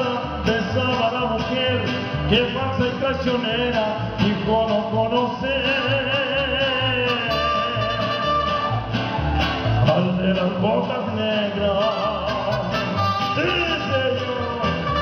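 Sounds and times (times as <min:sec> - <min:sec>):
guitars strumming: 0:00.0 - 0:15.0
pulsing bass: 0:00.0 - 0:15.0
trumpet: 0:05.6 - 0:09.0, 0:11.6 - 0:15.0.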